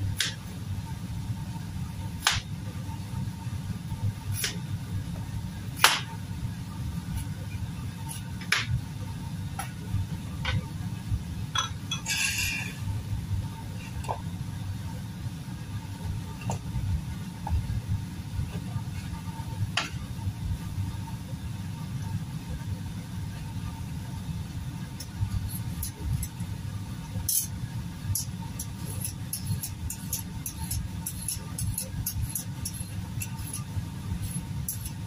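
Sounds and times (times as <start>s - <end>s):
steady low rumble: 0.0s - 28.0s.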